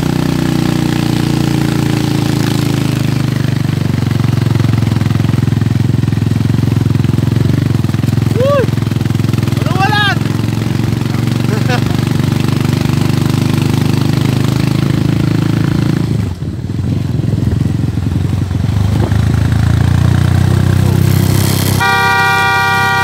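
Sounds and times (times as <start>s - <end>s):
motorcycle engine running: 0.0s - 23.0s
vehicle horn honking: 21.8s - 23.0s.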